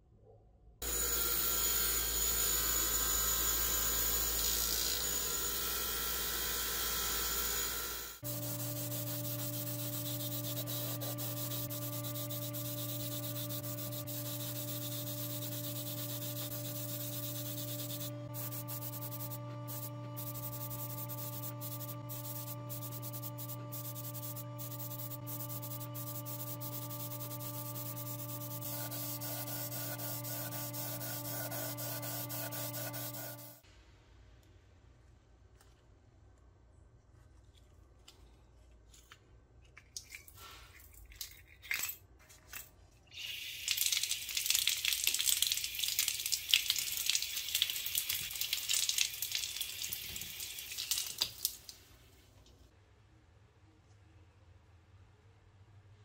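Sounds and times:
small electric tool drone: 0.8s - 33.6s
abrasive sanding scratching: 8.2s - 33.6s.

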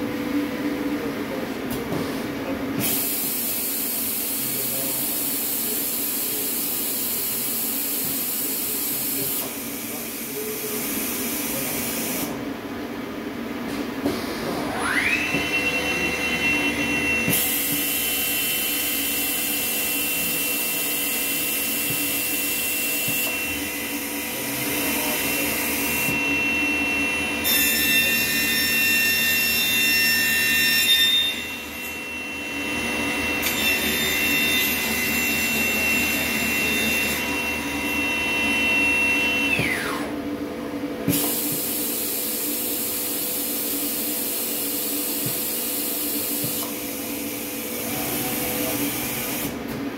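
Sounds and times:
router spindle whine: 14.5s - 40.2s.

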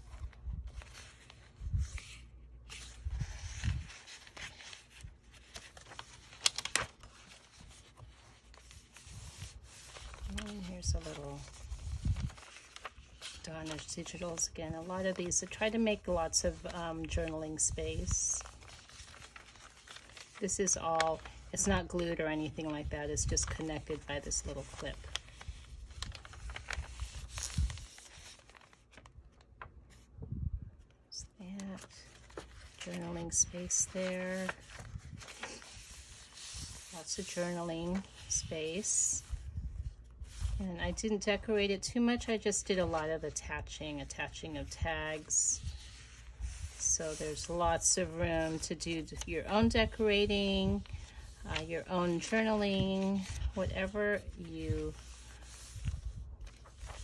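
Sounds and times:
paper rustling and crinkling: 0.0s - 57.0s.

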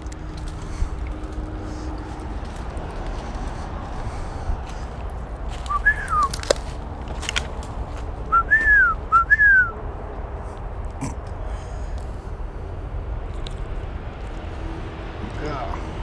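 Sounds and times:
low background rumble: 0.0s - 16.0s
slurred whistled notes: 5.6s - 6.4s, 8.3s - 9.8s.

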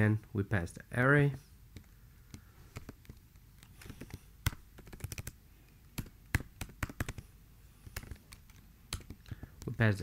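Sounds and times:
keyboard typing clicks: 3.8s - 5.4s, 6.0s - 7.2s.

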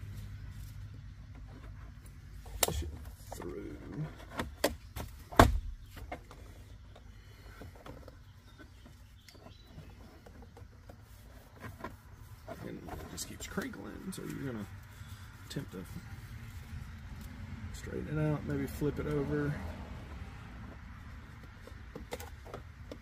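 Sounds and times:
soft rustles and ticks: 0.0s - 23.0s
handling knocks and clicks: 1.2s - 14.4s, 20.1s - 23.0s.

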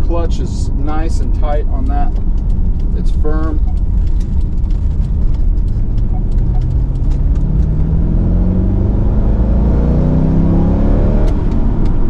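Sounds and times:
road noise inside car: 0.0s - 12.0s
car engine accelerating: 0.1s - 12.0s.

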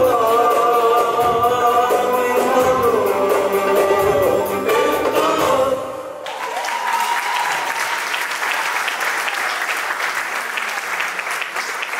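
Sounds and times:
music: 0.0s - 6.2s
audience applause: 6.2s - 11.9s.

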